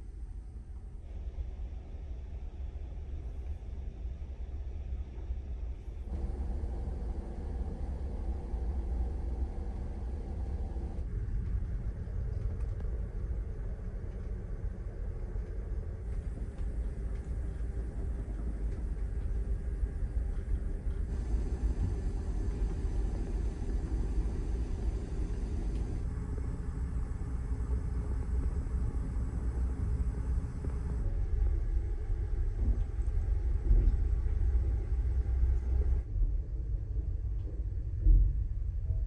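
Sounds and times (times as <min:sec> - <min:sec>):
ship engines rumbling: 0:05.5 - 0:11.1, 0:15.8 - 0:36.0
hull vibration: 0:06.0 - 0:39.0.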